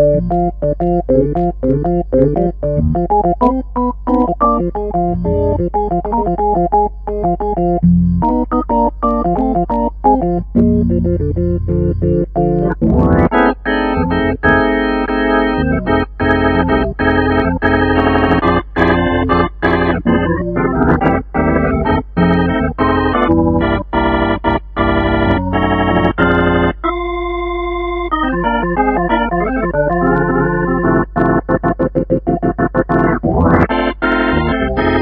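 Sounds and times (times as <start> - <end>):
steady low bass: 0.0 - 26.8, 28.5 - 35.0
keyboard organ chords: 0.0 - 35.0.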